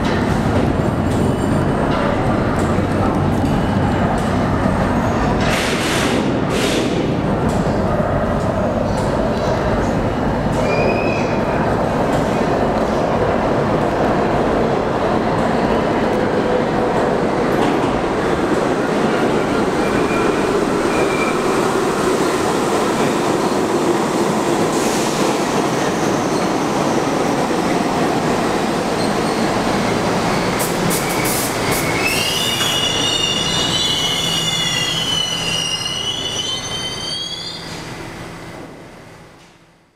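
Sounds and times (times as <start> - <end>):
subway train wheels rumbling: 0.0 - 39.9
steel wheel squeal: 30.4 - 37.8.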